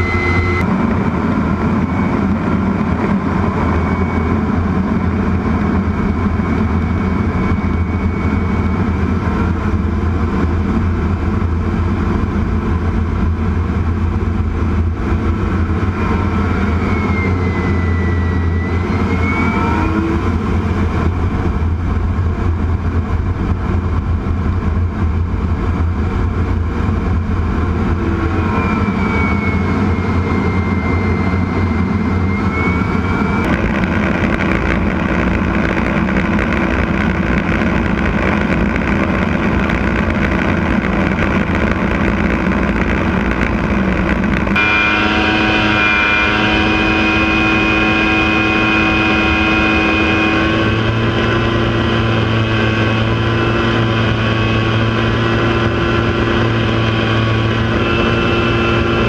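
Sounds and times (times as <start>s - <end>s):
high turbine whine: 0.0s - 59.0s
jet engine rush and drone: 0.0s - 59.0s.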